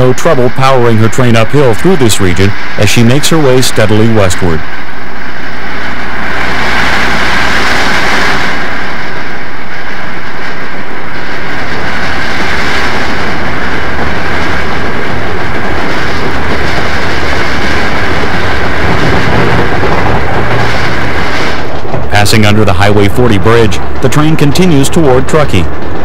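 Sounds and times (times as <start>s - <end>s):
steam locomotive exhaust rushing: 0.0s - 26.0s.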